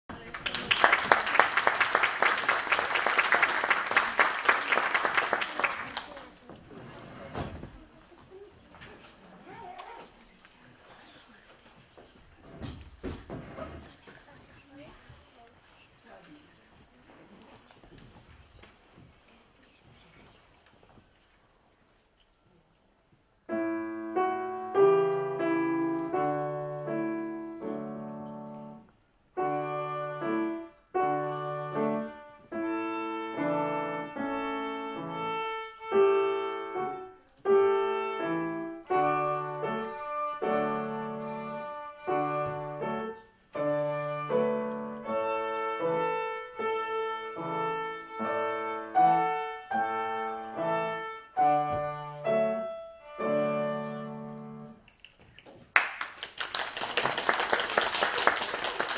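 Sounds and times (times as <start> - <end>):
piano accompaniment: 23.4 - 54.8
child playing violin: 29.4 - 54.6.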